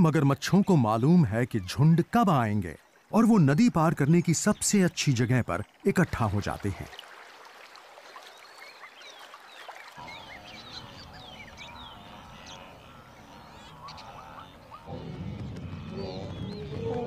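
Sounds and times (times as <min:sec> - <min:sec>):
wild birds chirping: 0:00.0 - 0:07.0, 0:08.1 - 0:17.0
wildebeest herd: 0:10.0 - 0:17.0.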